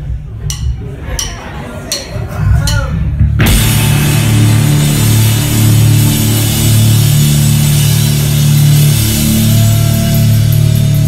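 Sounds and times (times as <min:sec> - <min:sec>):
drum kit and cymbals: 0:00.0 - 0:11.0
live rock band playing: 0:02.9 - 0:11.0.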